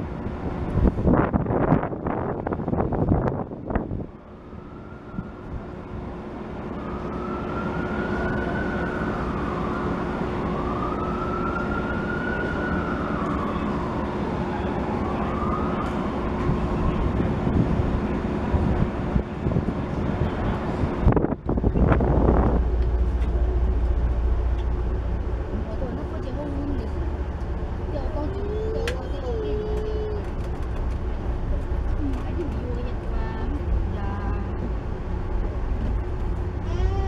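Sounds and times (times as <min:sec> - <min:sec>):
low hum of idling trains: 0:00.0 - 0:37.0
siren wailing: 0:04.4 - 0:05.6, 0:06.7 - 0:17.0.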